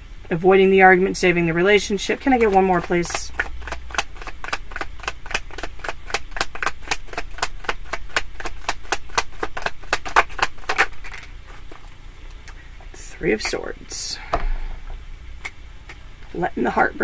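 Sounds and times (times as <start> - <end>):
cards being shuffled: 1.9 - 12.0.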